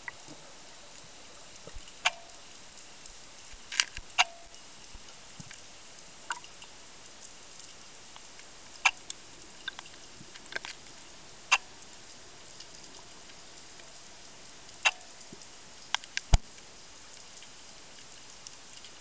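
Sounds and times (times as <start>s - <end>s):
sharp clicks and pops: 1.7s - 2.4s, 3.0s - 4.6s, 8.1s - 10.8s, 14.8s - 15.2s, 15.9s - 16.6s.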